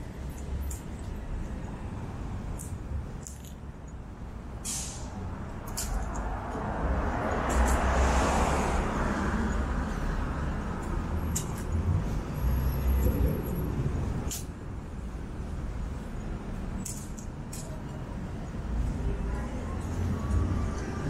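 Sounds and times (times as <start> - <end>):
low rumble of traffic: 0.0 - 21.0
car passing: 6.0 - 14.2.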